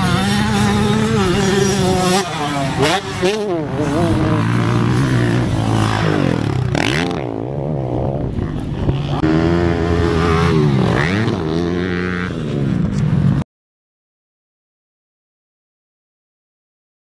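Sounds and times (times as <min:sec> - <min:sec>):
dirt bike engines revving: 0:00.0 - 0:13.4.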